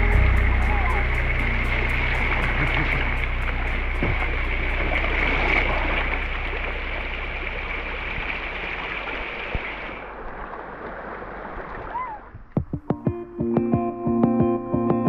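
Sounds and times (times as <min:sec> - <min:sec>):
steady high-pitched tone: 0:00.0 - 0:08.7
river water rushing over rocks: 0:00.1 - 0:12.3.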